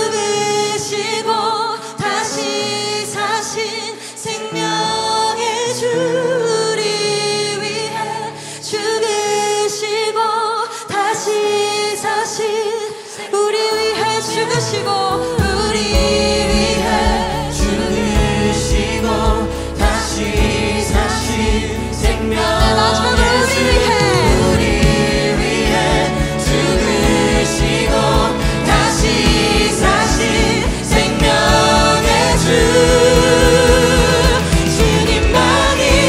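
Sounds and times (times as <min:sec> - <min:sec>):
choir singing: 0:00.0 - 0:36.0
woman singing lead: 0:00.0 - 0:36.0
keyboards and band: 0:14.0 - 0:36.0
steady kick drum: 0:15.4 - 0:36.0.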